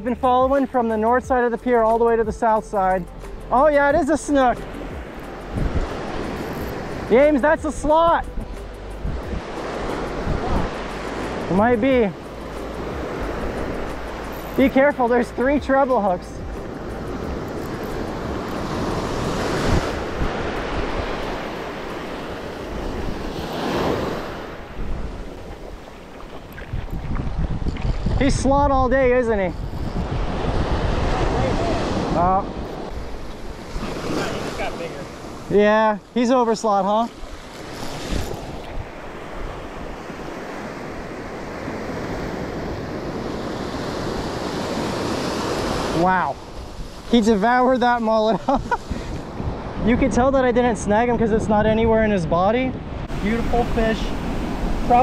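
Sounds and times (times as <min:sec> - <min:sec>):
ocean surf breaking on sand: 0:03.6 - 0:08.4, 0:09.0 - 0:55.0.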